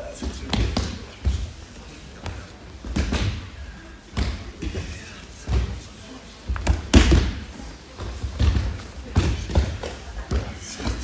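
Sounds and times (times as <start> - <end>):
bodies thudding on mats: 6.5 - 11.0.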